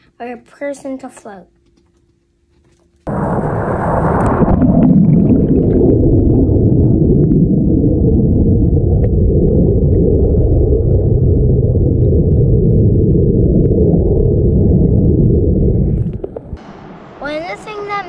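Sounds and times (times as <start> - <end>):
underwater churning water rumble: 3.1 - 18.0.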